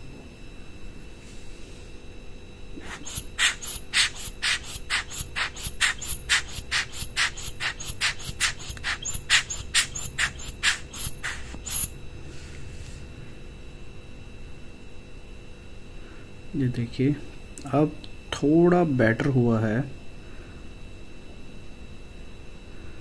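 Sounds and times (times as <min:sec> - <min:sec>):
air blower hissing puffs: 0:02.8 - 0:13.2.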